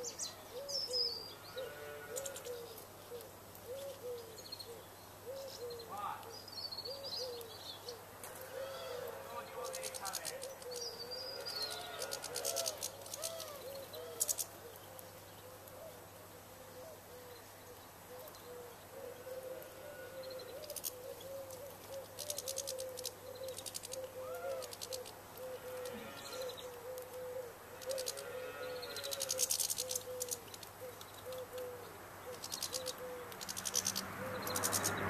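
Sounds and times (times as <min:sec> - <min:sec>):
birds warbling: 0:00.0 - 0:35.0
high chirping trills: 0:32.3 - 0:35.0.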